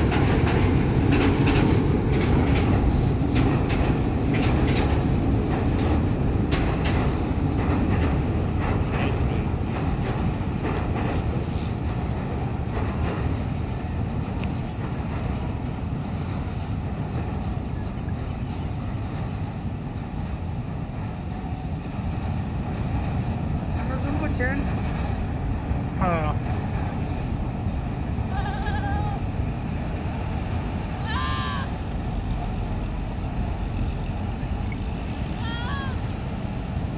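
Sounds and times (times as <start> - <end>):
train rumbling over bridge: 0.0 - 36.9
wheels clacking on rails: 0.0 - 36.9
goat bleating: 28.3 - 29.1.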